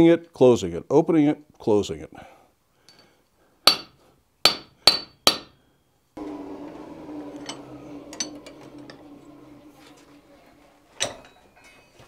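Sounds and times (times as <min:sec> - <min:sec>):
steady low hum: 0:06.2 - 0:10.8.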